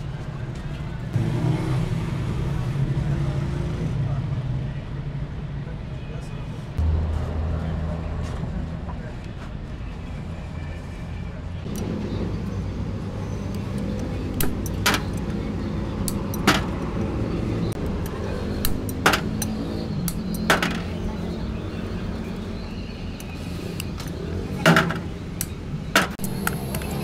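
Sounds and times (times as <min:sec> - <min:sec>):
low mechanical drone: 0:06.8 - 0:27.0
sharp clicks and knocks: 0:13.5 - 0:15.4, 0:16.0 - 0:17.1, 0:17.7 - 0:21.0, 0:23.2 - 0:27.0.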